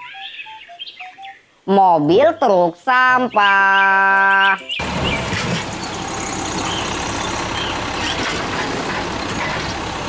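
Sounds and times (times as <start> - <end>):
garbage truck diesel engine: 4.8 - 10.0
hydraulic arm lifting: 4.8 - 10.0.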